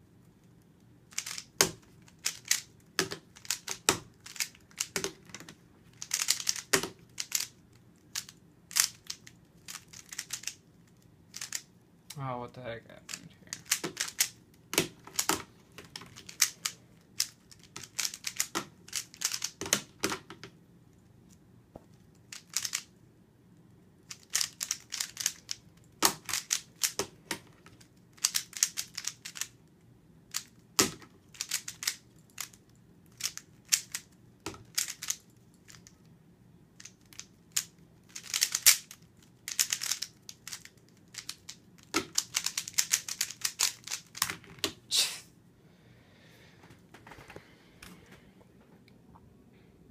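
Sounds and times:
puzzle cube plastic clacking: 0.4 - 11.7, 13.1 - 20.6, 22.0 - 23.0, 24.0 - 29.6, 30.3 - 36.0, 36.8 - 44.8.

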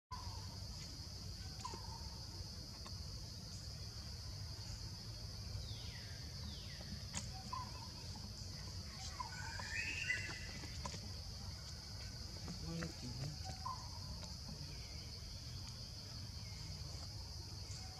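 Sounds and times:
high insect drone: 0.1 - 17.9
warbling bird call: 8.9 - 10.8.

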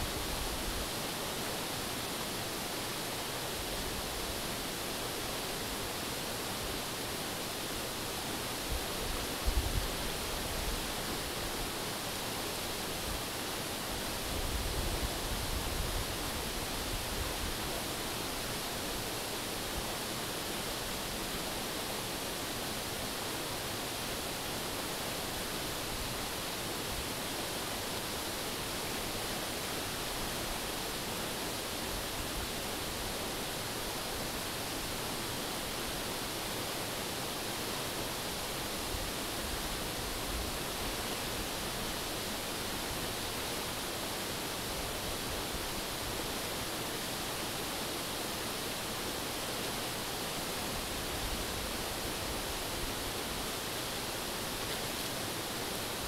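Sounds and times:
river rushing over rocks: 0.0 - 56.0.

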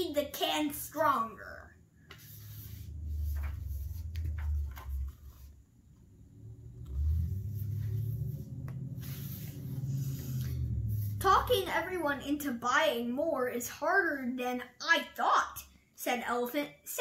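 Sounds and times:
book pages turning: 2.0 - 5.6, 6.8 - 11.2
low rumble: 2.3 - 12.0.

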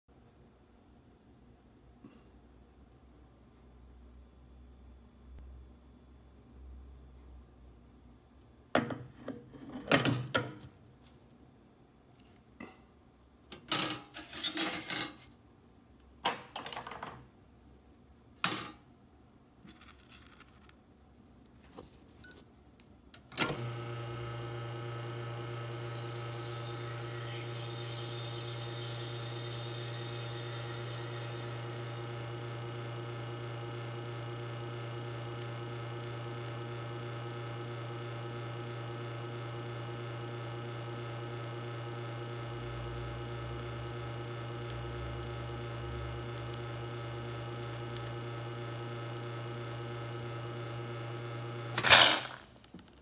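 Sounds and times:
espresso machine pump humming: 23.4 - 52.4.

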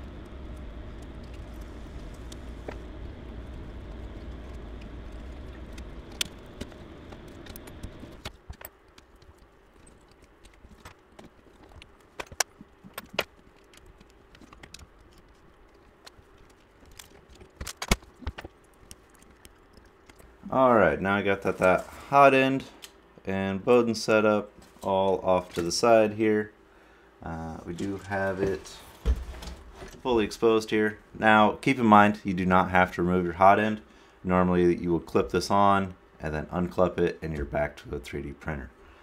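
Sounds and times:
steady low hum: 0.0 - 39.0
sharp clicks: 0.5 - 20.4.

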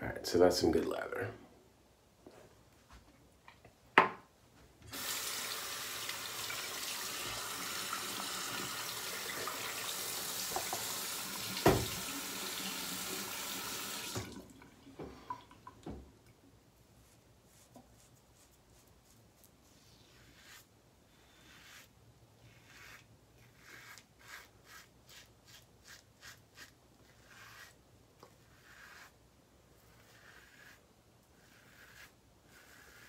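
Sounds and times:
tap water running: 4.9 - 16.1
knock: 11.6 - 12.0.

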